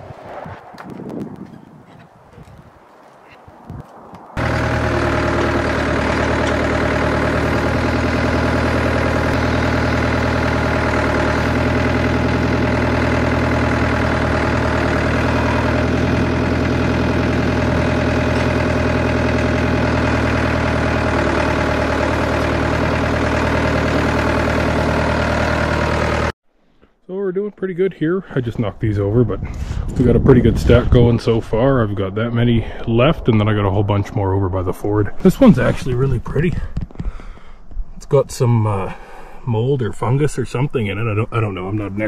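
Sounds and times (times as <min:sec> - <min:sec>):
engine running steadily: 0:04.3 - 0:26.3.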